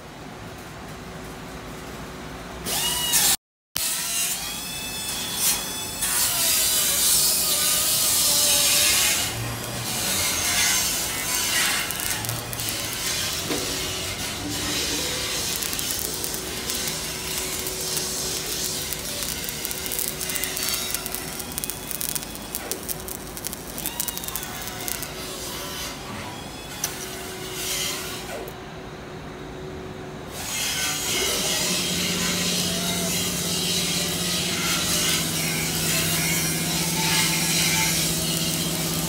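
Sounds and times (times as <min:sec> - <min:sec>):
welding arc crackling: 0:06.0 - 0:25.5, 0:34.8 - 0:39.0.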